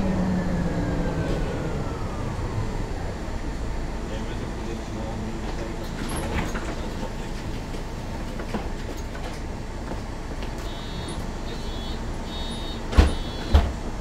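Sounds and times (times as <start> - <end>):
bus diesel engine idling: 0.0 - 14.0
high beeping: 10.6 - 13.5.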